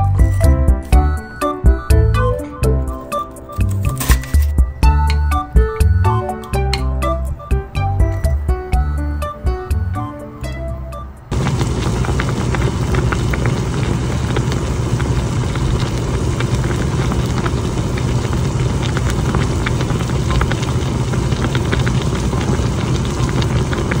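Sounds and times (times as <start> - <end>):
soup boiling in a pot: 11.3 - 24.0
bubbles popping: 11.4 - 24.0.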